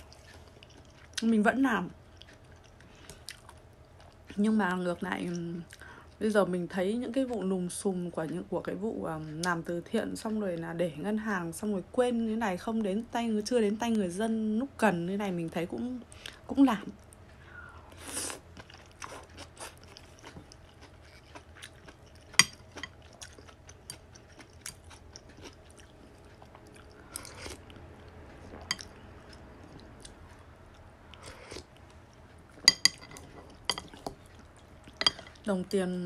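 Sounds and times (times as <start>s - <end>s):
chewing with wet mouth clicks: 0.0s - 1.2s, 2.1s - 4.4s, 18.6s - 35.4s
chopsticks clinking against bowl: 28.6s - 28.9s, 32.6s - 34.1s, 35.0s - 35.4s.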